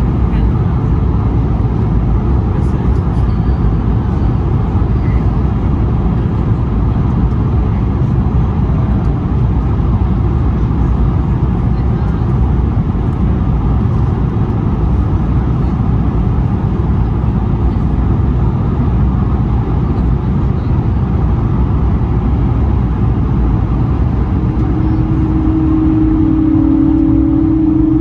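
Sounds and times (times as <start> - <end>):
jet engine rumble: 0.0 - 28.0
airflow noise: 21.8 - 28.0.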